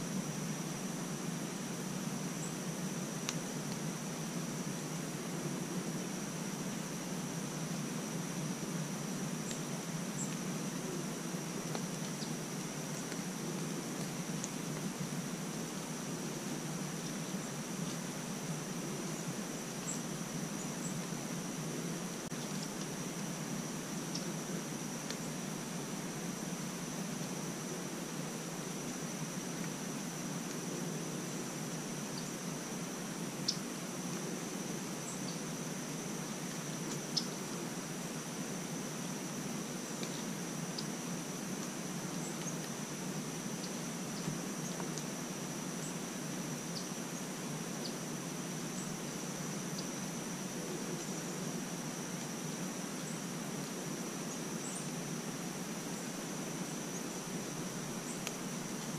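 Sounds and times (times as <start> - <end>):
low hiss: 0.0 - 58.9
faint sharp ticks: 58.2 - 58.9.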